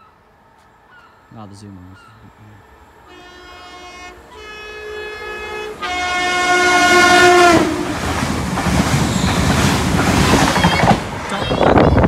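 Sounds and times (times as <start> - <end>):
train rushing past: 2.6 - 12.0
train horn blasts: 3.0 - 8.0.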